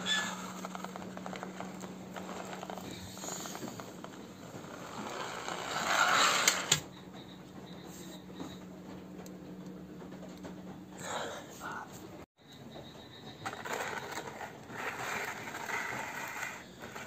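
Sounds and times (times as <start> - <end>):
toy car rolling rush: 0.0 - 6.8, 13.3 - 17.0
toy car wheels clicking and rattling: 0.0 - 6.8, 13.4 - 17.0.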